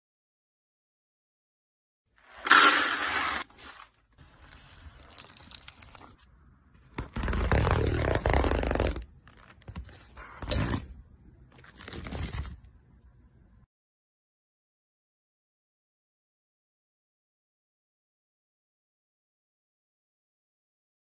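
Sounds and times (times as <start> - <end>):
pellets poured into plastic tub: 2.2 - 6.0.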